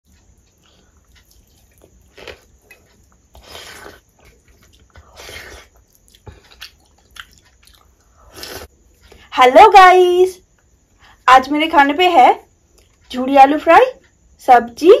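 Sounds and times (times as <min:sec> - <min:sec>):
chewing: 0:00.1 - 0:09.2
wet eating sounds: 0:00.6 - 0:08.8.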